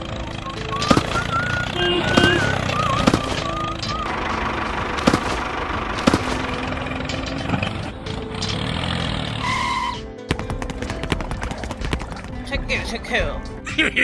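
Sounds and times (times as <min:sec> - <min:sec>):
small engine running: 0:00.0 - 0:10.0.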